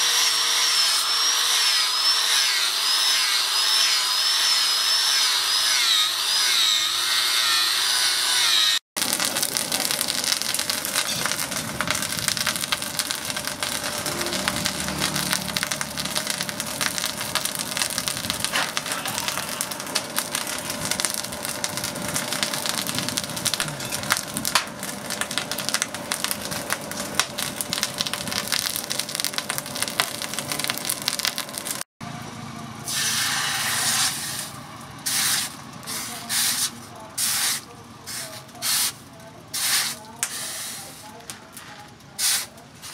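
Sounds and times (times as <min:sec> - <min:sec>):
angle grinder grinding steel: 0:00.0 - 0:09.3
forge fire crackling and popping: 0:09.0 - 0:31.9.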